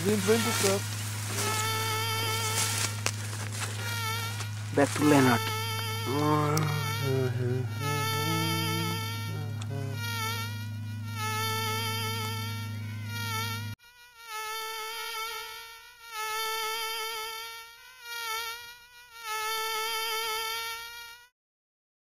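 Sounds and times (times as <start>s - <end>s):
low steady hum: 0.0s - 13.8s
mosquito wing whine: 0.0s - 21.3s.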